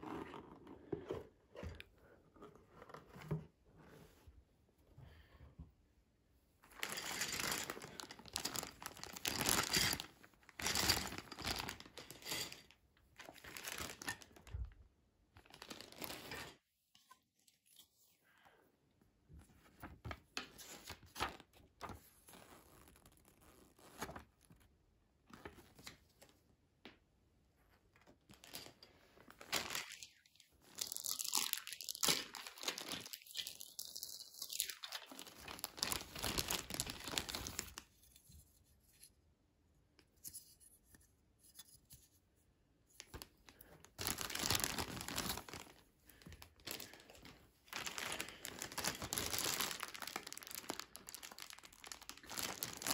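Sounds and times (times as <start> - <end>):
plastic bags crinkling: 6.7 - 14.5, 15.4 - 16.4, 28.4 - 30.0, 30.6 - 37.8, 43.9 - 52.9.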